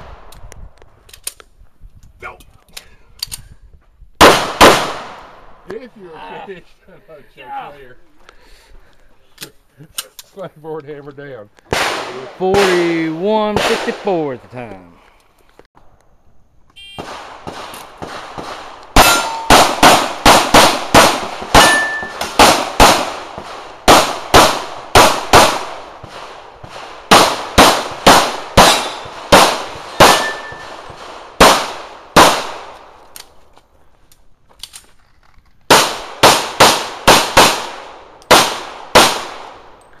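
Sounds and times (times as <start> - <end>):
pistol shots: 4.2 - 5.4, 11.7 - 14.2, 16.9 - 32.8, 35.7 - 39.6.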